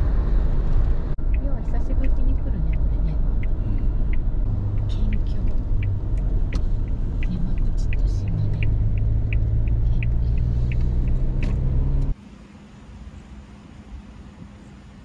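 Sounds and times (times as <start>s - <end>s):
car engine and road rumble: 0.0s - 15.0s
light high ticking: 1.2s - 11.4s.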